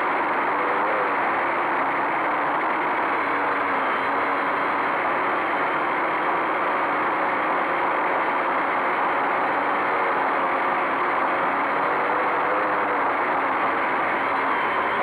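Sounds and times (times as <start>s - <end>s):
drone propellers buzzing: 0.0s - 15.0s.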